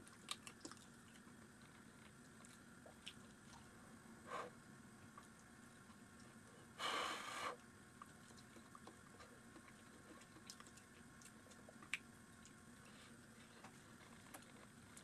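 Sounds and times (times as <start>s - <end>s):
man chewing food: 0.0s - 6.5s, 7.6s - 15.0s
breathy puff of air: 6.8s - 7.6s.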